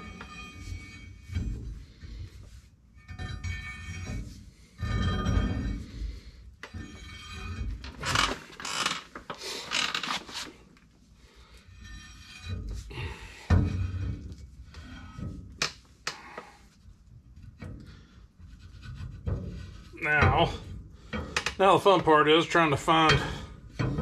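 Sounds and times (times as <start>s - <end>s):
metal scraping: 0.0s - 8.8s, 9.4s - 24.0s
metal axle clunking: 19.4s - 24.0s.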